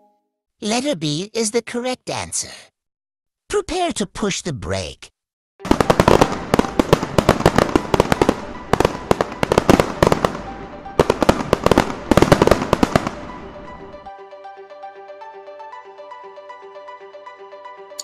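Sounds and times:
fireworks bangs and crackling: 5.6s - 13.4s
background music repeating melody: 5.6s - 18.0s.

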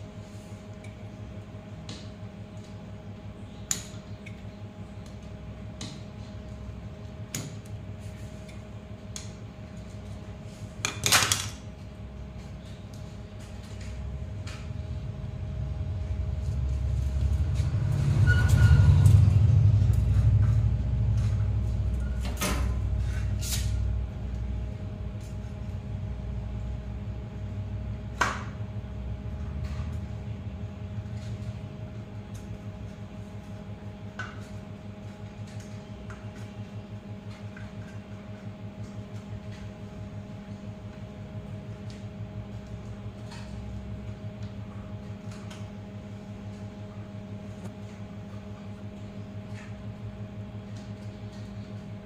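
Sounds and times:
low rumble: 14.1s - 22.2s.

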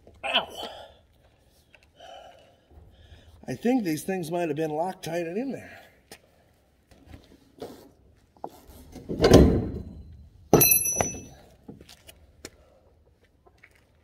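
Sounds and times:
heavy thump: 9.1s - 11.3s
metallic clank with ring: 9.9s - 11.4s.

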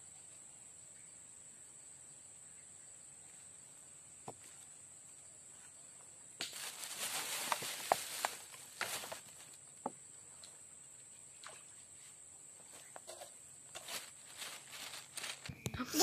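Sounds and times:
handling rustling with clicks: 13.0s - 15.8s.

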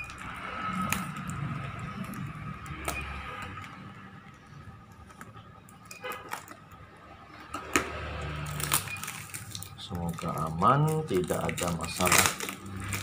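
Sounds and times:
tape and wrapping rustling: 4.8s - 6.8s, 7.4s - 13.0s.

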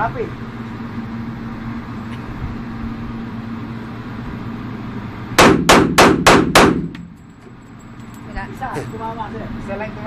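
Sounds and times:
low background hum: 0.0s - 10.0s
pistol gunshot with echo: 5.4s - 7.1s.

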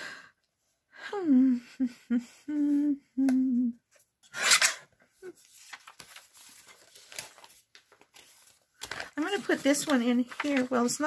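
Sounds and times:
person humming: 1.0s - 3.8s
paper rustling: 5.3s - 11.0s.

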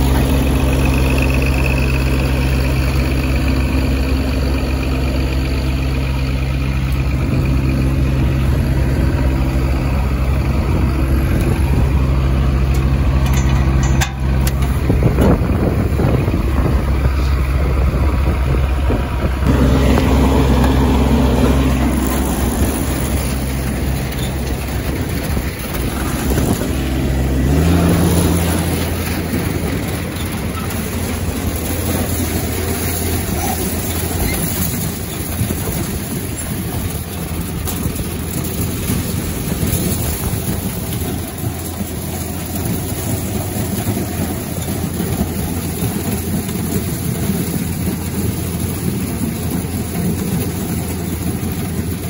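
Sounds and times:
tractor engine running: 0.0s - 52.0s
chain elevator clattering: 12.8s - 14.9s, 28.0s - 45.1s
corn tumbling into hopper: 19.4s - 52.0s.

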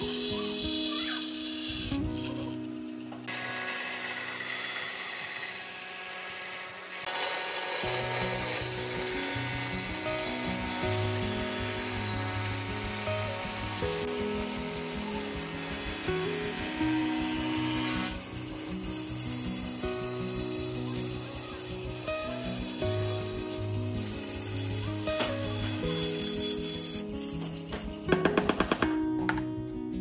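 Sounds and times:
background music: 0.0s - 5.5s, 7.1s - 30.0s
band saw cutting wood: 0.0s - 28.5s.

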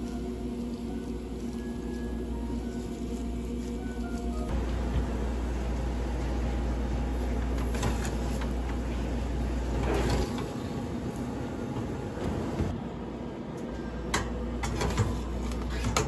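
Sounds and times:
oven humming: 0.0s - 16.0s.

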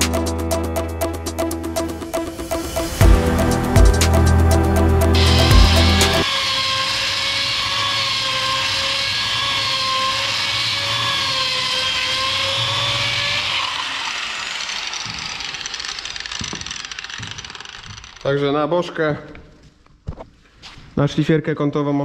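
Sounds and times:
angle grinder whining: 2.2s - 18.7s.

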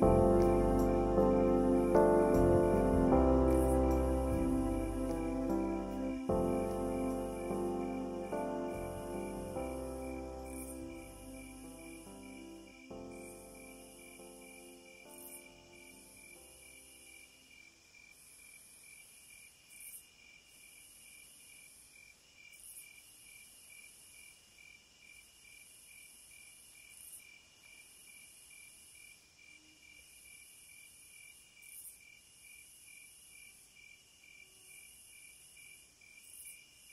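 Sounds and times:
high-pitched hiss: 0.0s - 17.7s
insect chirping: 0.0s - 36.9s.

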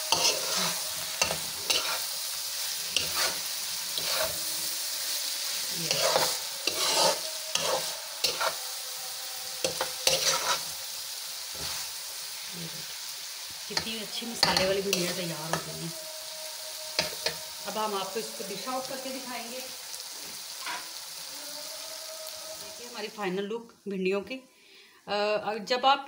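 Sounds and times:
spatula scraping and knocking pan: 0.0s - 2.0s
food sizzling in a wok: 0.0s - 25.9s.

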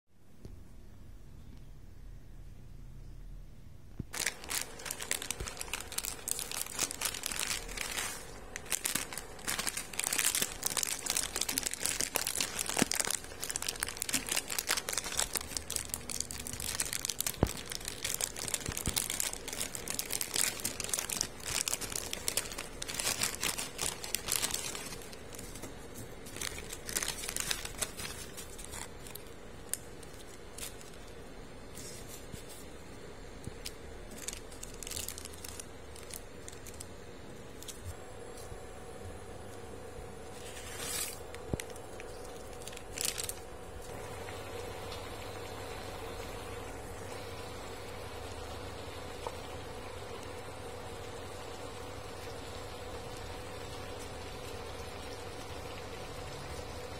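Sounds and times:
plastic packet crinkling: 4.1s - 32.7s, 33.5s - 38.0s, 40.3s - 44.0s.

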